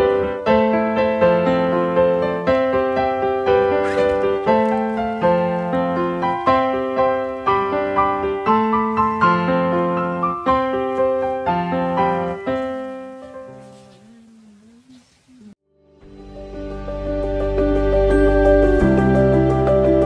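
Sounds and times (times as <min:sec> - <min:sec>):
gentle piano melody: 0:00.0 - 0:14.8, 0:16.0 - 0:20.0.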